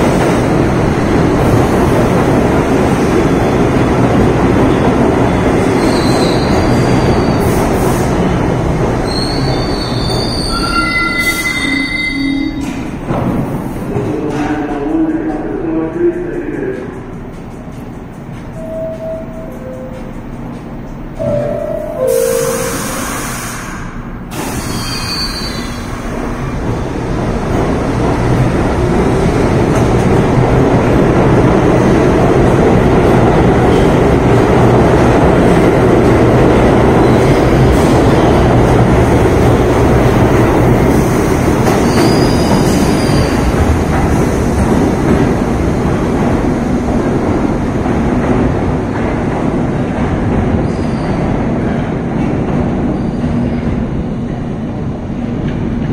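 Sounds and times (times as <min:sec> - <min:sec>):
train doors closing: 0:00.0 - 0:15.6, 0:17.6 - 0:55.9
subway train running: 0:00.0 - 0:55.9
wheel squeal: 0:09.0 - 0:12.8, 0:24.5 - 0:25.9, 0:41.8 - 0:43.4.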